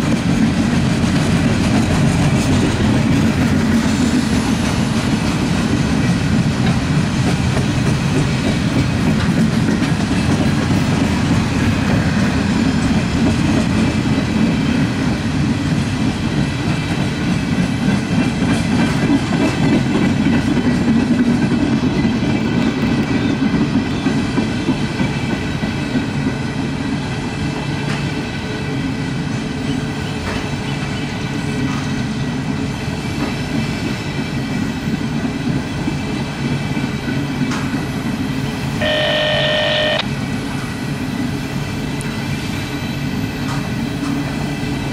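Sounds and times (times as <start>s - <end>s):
rail clicks: 0.0s - 26.4s, 35.5s - 37.9s, 38.8s - 41.3s, 43.4s - 44.9s
train wheels rumbling on rails: 0.0s - 44.9s
faint high ringing tones: 38.8s - 40.0s.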